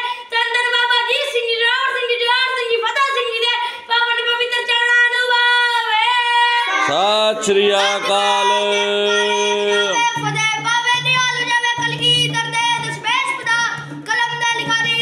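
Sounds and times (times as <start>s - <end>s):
children singing held notes: 6.6s - 10.4s.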